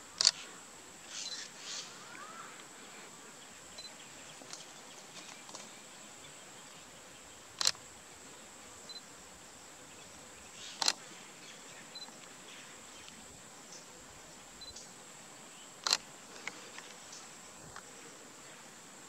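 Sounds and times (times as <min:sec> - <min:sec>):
high-pitched insect whine: 0:00.0 - 0:19.0.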